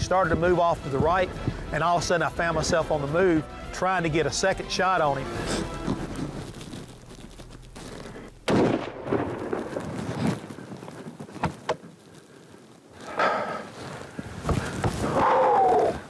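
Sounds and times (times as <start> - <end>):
rifle shot echoing: 8.4 - 10.0.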